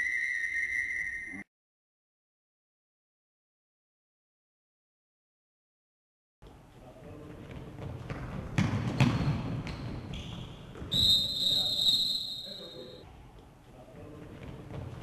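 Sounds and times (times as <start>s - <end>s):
ball bouncing on hall floor: 7.2s - 12.0s, 14.2s - 15.0s
referee's whistle blast: 10.9s - 13.0s.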